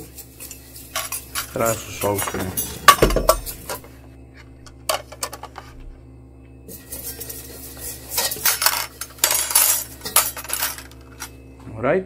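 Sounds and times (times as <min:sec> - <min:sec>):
spatula scraping a wok: 0:00.0 - 0:03.9, 0:06.7 - 0:10.2.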